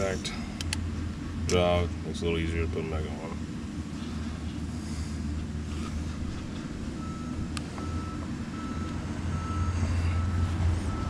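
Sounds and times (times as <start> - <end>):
reversing alarm beeping: 7.0 - 11.0.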